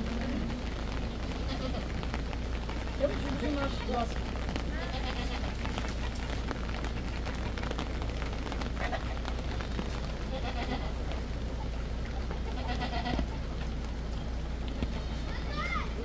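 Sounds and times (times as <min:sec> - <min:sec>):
goat bleating: 0:00.0 - 0:06.2, 0:08.8 - 0:09.4, 0:10.1 - 0:11.1, 0:12.4 - 0:13.5
background hiss: 0:00.0 - 0:16.0.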